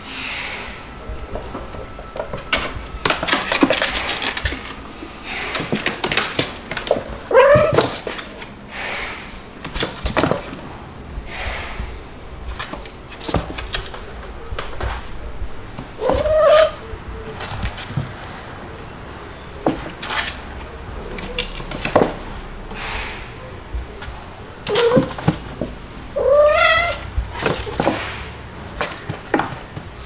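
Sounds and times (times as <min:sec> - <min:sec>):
cats scuffling on wooden floor: 0:01.1 - 0:11.7, 0:12.3 - 0:30.0
cat meow: 0:07.3 - 0:07.9, 0:16.0 - 0:17.4, 0:26.1 - 0:27.6.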